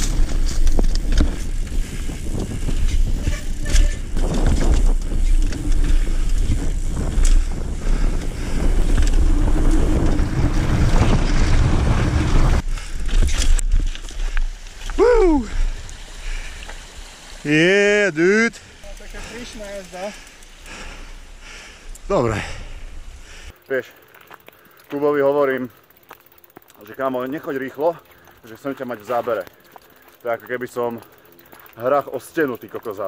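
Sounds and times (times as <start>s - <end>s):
wind rushing over microphone: 0.0s - 17.1s
bike rattling over rough ground: 0.0s - 33.0s
bike tyre rumble: 0.0s - 33.0s.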